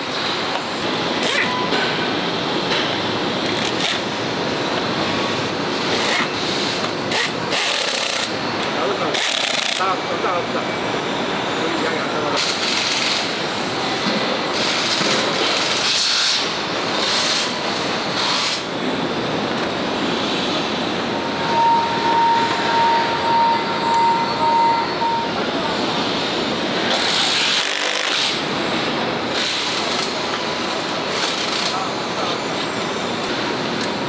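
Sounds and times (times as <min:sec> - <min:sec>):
factory assembly line noise: 0:00.0 - 0:34.0
steady high tone: 0:16.5 - 0:26.8.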